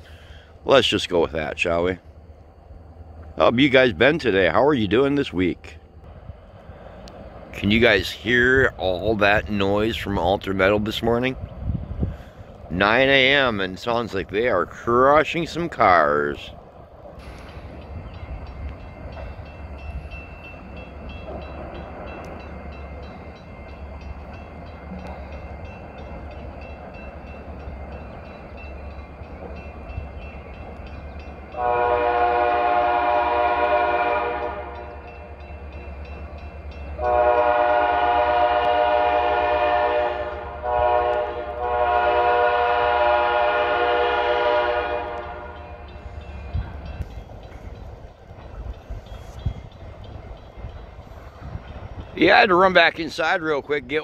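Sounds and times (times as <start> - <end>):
low rumble of locomotive: 0.0 - 54.0
locomotive air horn blasts: 31.5 - 35.1, 37.0 - 45.8.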